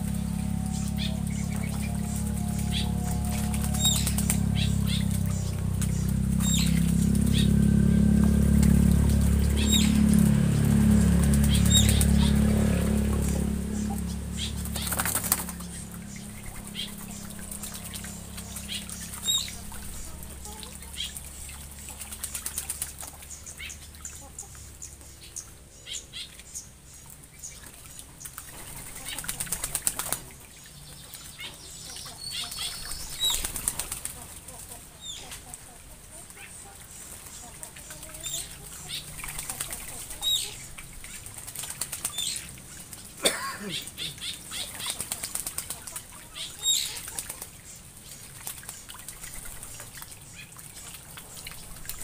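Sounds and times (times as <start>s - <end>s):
low rumble: 0.0s - 24.9s
birds splashing in water: 0.0s - 52.0s.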